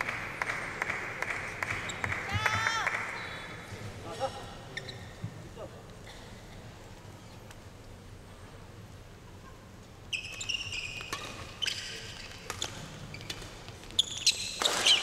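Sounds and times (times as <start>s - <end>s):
low arena hum: 0.0s - 15.0s
shoes squeaking on court: 4.7s - 5.4s, 10.0s - 15.0s
rackets hitting shuttlecock: 10.2s - 15.0s.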